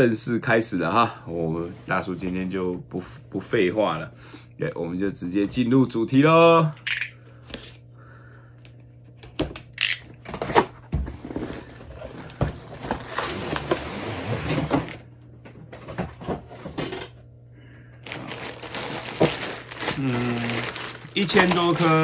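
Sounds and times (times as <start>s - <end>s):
cardboard scraping: 11.1s - 15.0s
plastic bags rustling: 18.0s - 22.0s.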